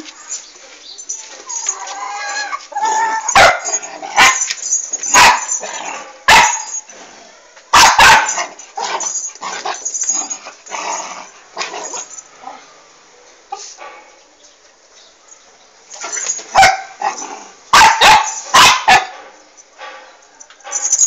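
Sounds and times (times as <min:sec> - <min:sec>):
dog barking: 0:03.4 - 0:04.4, 0:05.1 - 0:05.5, 0:06.3 - 0:06.7, 0:07.3 - 0:08.6, 0:16.5 - 0:17.0, 0:17.7 - 0:20.4.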